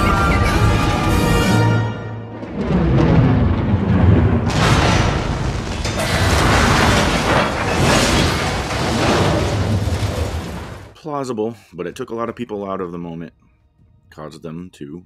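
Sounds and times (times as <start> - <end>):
dramatic score music: 0.0 - 6.5
heavy low rumble: 2.2 - 10.6
long rushing crash: 2.2 - 10.9.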